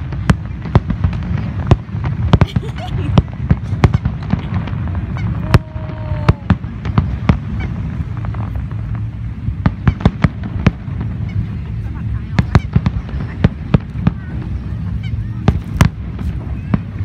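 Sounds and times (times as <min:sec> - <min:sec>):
fireworks bangs: 0:00.0 - 0:17.0
steady low rumble: 0:00.0 - 0:17.0.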